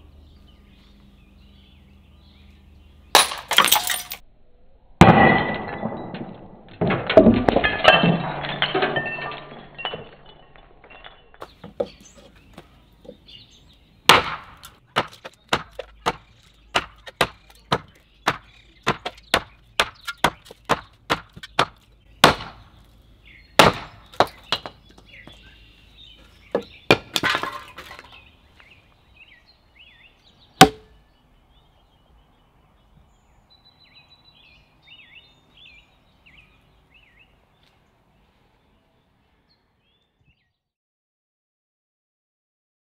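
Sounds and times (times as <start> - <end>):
axe chopping into wood: 14.1 - 22.7, 23.6 - 24.8, 26.5 - 28.1, 30.6 - 30.9.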